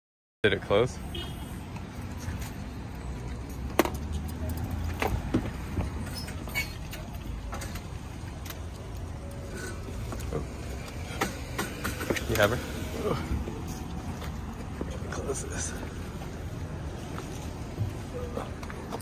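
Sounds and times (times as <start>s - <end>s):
knocks and bumps in a minivan: 4.9s - 6.1s, 17.6s - 19.0s.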